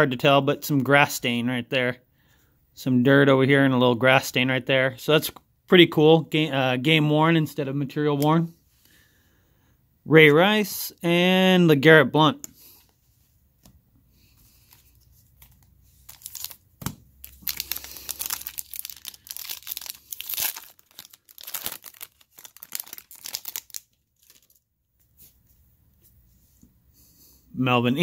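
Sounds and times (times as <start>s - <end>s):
foil wrapper tearing and crinkling: 16.0s - 24.6s.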